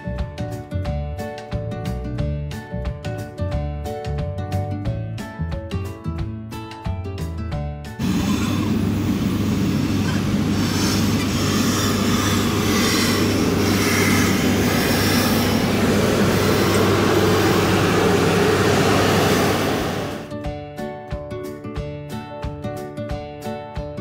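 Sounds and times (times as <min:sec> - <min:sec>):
background music: 0:00.0 - 0:08.1, 0:13.2 - 0:24.0
low hum: 0:08.0 - 0:20.3
steam locomotive moving slowly: 0:08.0 - 0:20.3.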